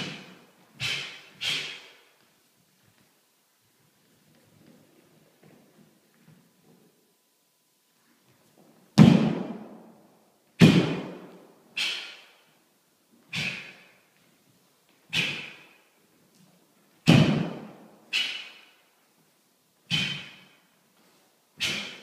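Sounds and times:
martial arts strikes snapping: 9.0 - 9.7, 10.6 - 11.2, 15.1 - 15.7, 17.1 - 18.8, 19.9 - 20.5, 21.6 - 22.0.

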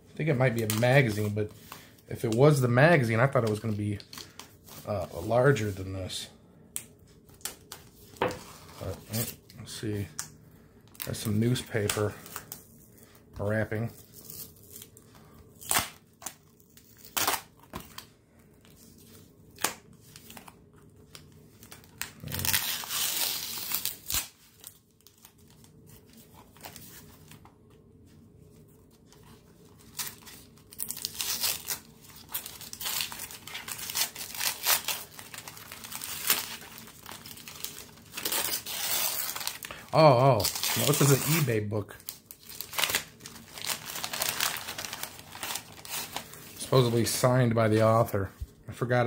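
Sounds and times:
cardboard tearing: 22.1 - 24.4, 29.8 - 41.6, 42.3 - 46.3
newspaper rustling and crinkling: 28.1 - 48.1.

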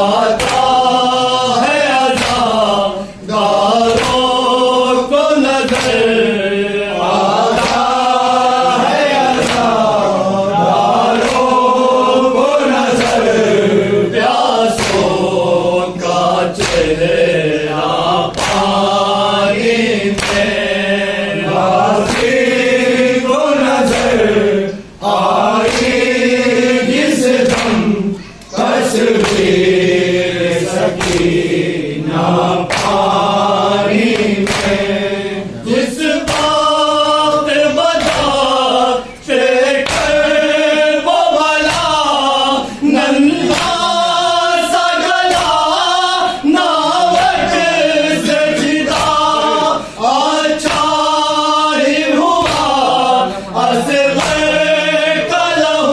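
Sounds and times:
men chanting in unison: 0.0 - 55.9
chest-beating slaps: 0.2 - 1.0, 1.9 - 2.8, 3.4 - 4.5, 5.4 - 6.3, 7.0 - 10.1, 10.7 - 11.7, 12.8 - 13.5, 14.7 - 15.4, 16.0 - 17.2, 17.8 - 20.8, 21.6 - 22.6, 23.7 - 24.4, 25.0 - 35.0, 35.7 - 40.5, 41.4 - 42.3, 43.2 - 44.2, 44.8 - 45.9, 46.6 - 49.6, 50.6 - 51.2, 52.2 - 53.1, 54.1 - 54.7.

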